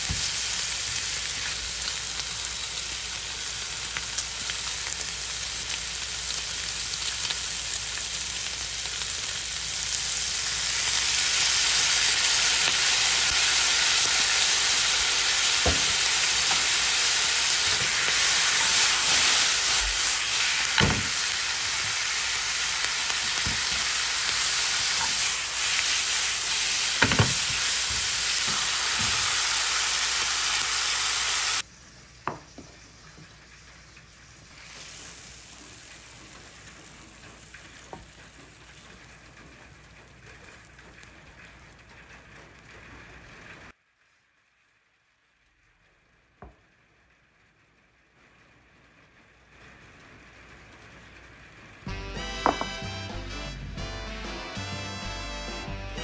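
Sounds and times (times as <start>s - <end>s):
meat sizzling in frying pan: 0.0s - 31.6s, 34.2s - 39.3s.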